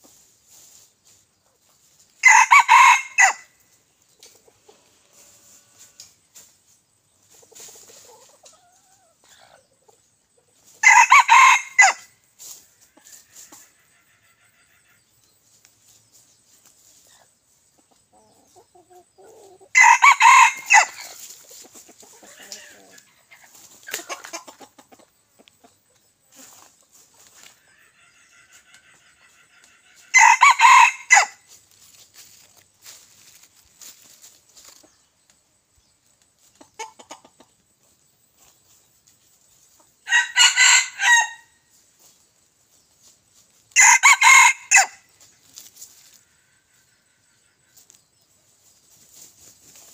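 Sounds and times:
chickens clucking and calling: 0.0 - 49.9
rooster crowing: 2.2 - 3.5, 10.8 - 12.1, 19.7 - 21.0, 30.1 - 31.4, 40.1 - 41.5, 43.8 - 45.0.

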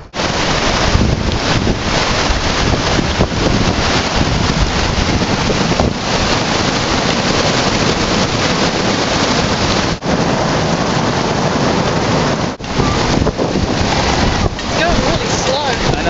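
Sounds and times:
river whitewater rushing over boulders: 0.0 - 16.0.

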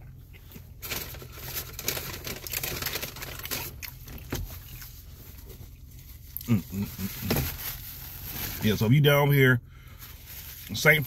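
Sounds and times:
low steady hum: 0.0 - 11.0
paper wrapping rustling: 0.8 - 6.2, 6.8 - 8.8.

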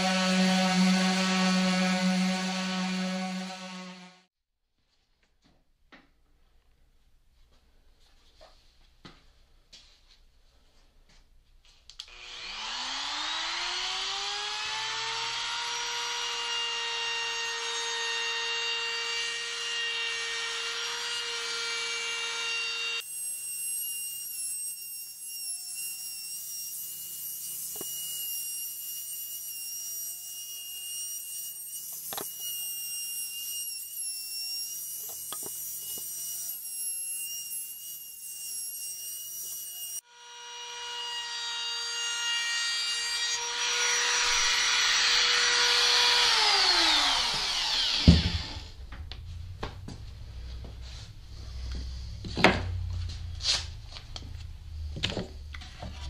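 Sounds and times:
router whining: 0.0 - 4.3, 11.9 - 23.0, 39.5 - 56.0.

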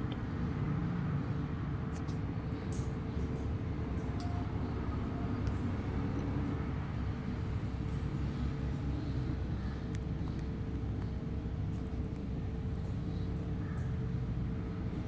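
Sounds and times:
faint constant hum: 0.0 - 15.0
low background rumble: 0.0 - 15.0.

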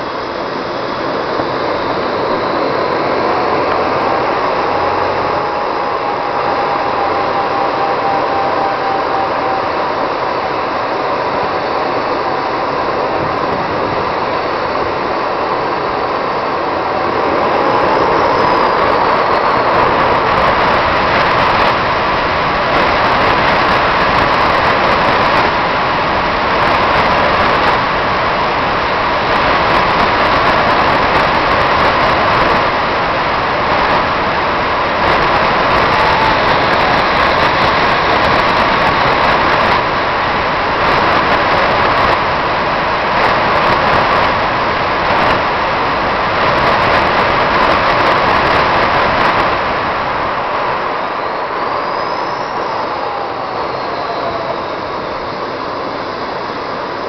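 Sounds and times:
jet turbine engines whining: 0.0 - 57.0.

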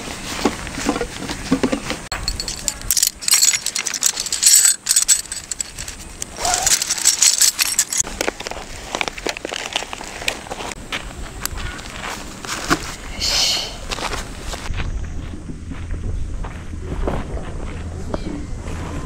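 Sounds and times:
fabric bags rustling: 2.1 - 8.1.

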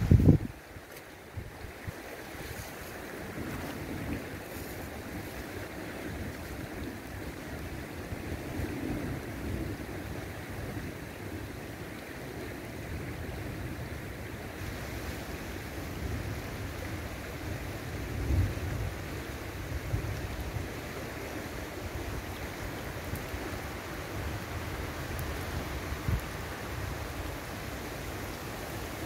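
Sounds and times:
wind buffeting microphone: 0.0 - 0.6, 1.3 - 11.4
river flowing over gravel: 0.0 - 29.0.

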